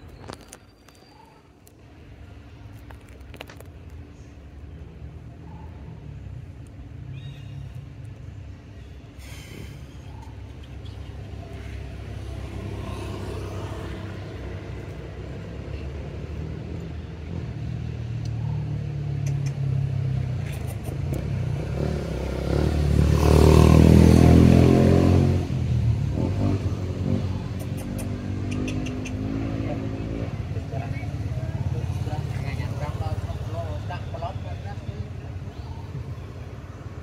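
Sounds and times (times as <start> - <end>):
passing vehicle engine: 5.9 - 37.0.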